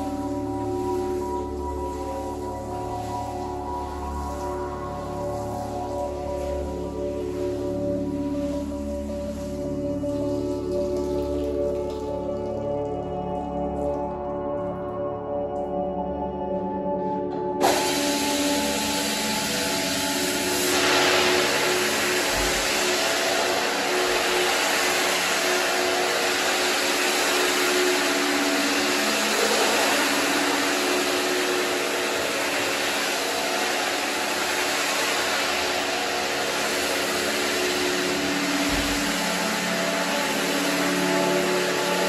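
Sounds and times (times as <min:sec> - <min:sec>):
brush scrubbing rug: 0:00.0 - 0:10.7, 0:17.6 - 0:42.0
rotary scrubber motor hum: 0:17.6 - 0:42.0.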